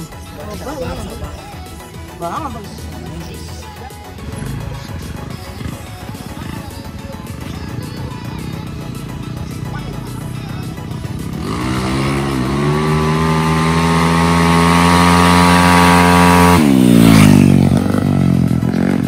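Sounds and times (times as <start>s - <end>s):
small motorcycle accelerating past: 4.2s - 19.0s.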